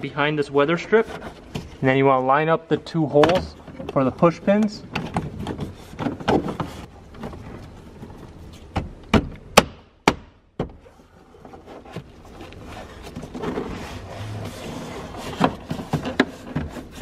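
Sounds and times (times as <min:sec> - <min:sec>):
plastic panel scraping rubber: 0:10.8 - 0:17.0.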